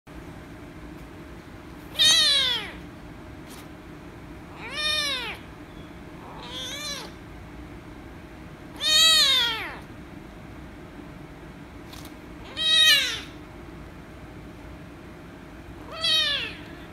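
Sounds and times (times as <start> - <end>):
kitten meowing loudly: 1.9 - 2.8, 4.6 - 5.4, 6.2 - 7.2, 8.8 - 9.8, 12.5 - 13.4, 15.9 - 16.7.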